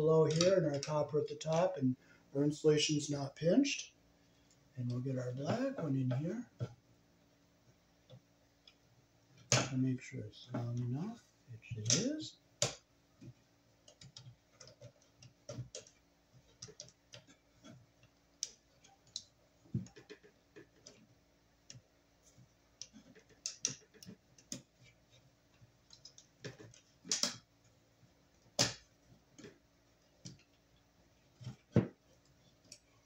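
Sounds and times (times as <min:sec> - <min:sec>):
wires clicking on metal terminals: 0:00.2 - 0:01.6, 0:11.7 - 0:27.5.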